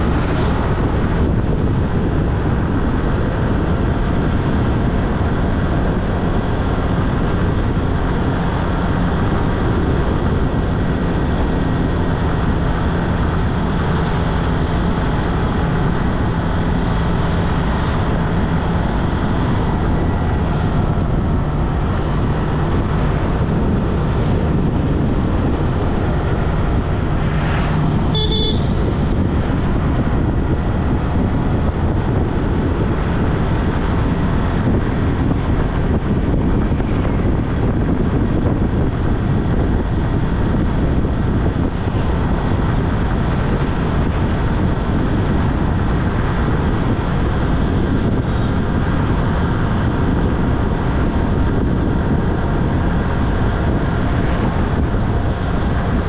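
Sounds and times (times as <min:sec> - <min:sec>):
car road noise on highway: 0:00.0 - 0:56.0
brief high-pitched tone: 0:28.1 - 0:28.8.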